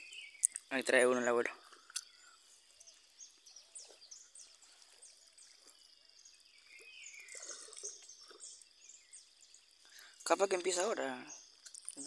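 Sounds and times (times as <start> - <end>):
high insect hum: 0.0 - 12.0
small birds chirping: 0.0 - 12.0.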